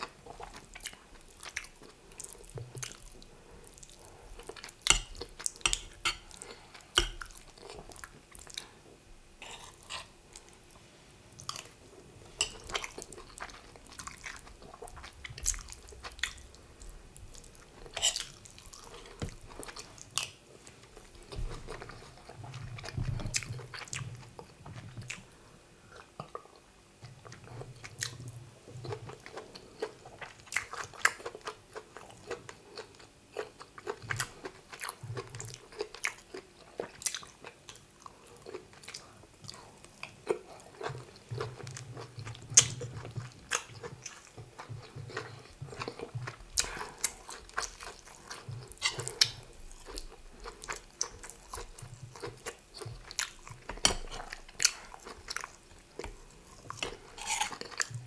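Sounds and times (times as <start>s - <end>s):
person chewing wetly: 0.0s - 8.8s, 12.4s - 28.2s, 28.8s - 58.0s.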